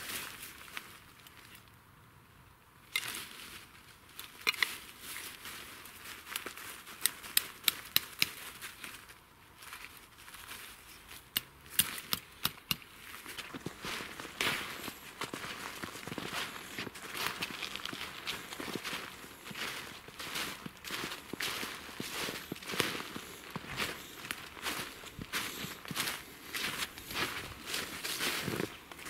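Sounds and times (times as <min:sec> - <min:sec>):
axe tapping tent stake: 0:07.0 - 0:08.4, 0:11.3 - 0:12.9.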